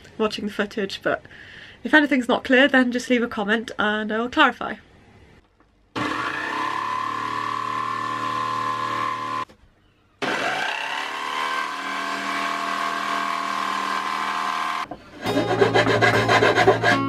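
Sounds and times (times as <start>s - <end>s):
jigsaw cutting wood: 6.0s - 9.5s, 10.2s - 14.9s.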